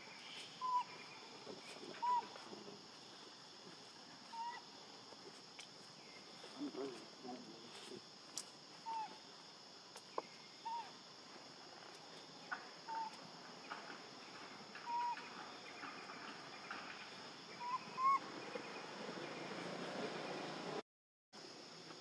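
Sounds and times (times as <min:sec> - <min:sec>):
insect drone: 0:00.0 - 0:20.8, 0:21.4 - 0:22.0
short arched calls: 0:17.6 - 0:18.2.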